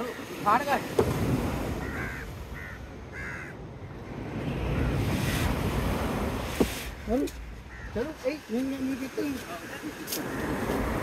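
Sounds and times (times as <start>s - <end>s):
harsh bird calls: 7.7s - 8.2s.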